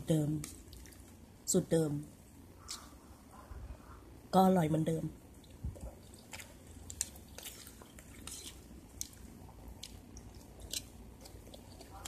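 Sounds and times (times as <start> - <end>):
person chewing food: 0.4 - 1.2, 2.6 - 3.2, 5.3 - 12.0.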